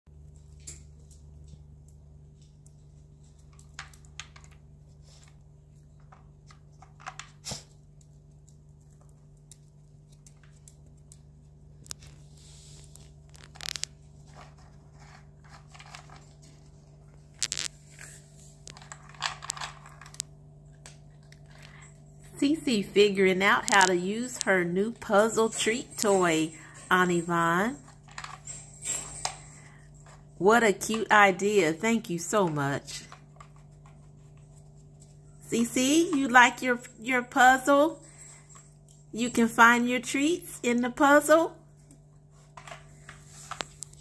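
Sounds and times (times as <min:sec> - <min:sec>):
faint steady hum: 0:00.1 - 0:44.0.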